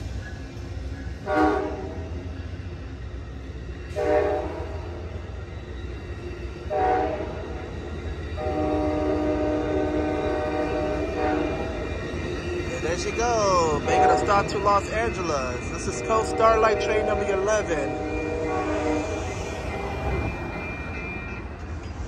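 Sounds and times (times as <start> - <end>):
passing train rumble: 0.0 - 22.0
locomotive horn blasts: 1.2 - 2.1, 4.0 - 4.8, 6.7 - 7.4, 8.4 - 11.8, 13.6 - 20.2.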